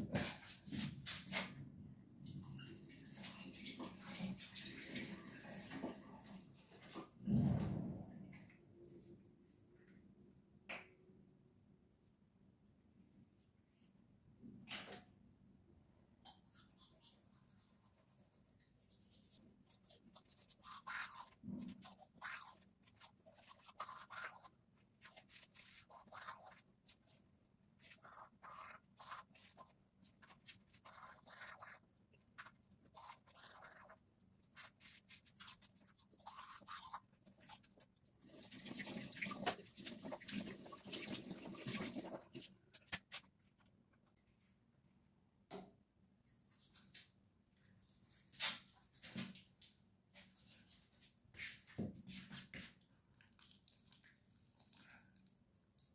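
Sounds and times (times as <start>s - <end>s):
toothbrush scrubbing teeth: 16.4s - 43.3s, 52.3s - 55.9s.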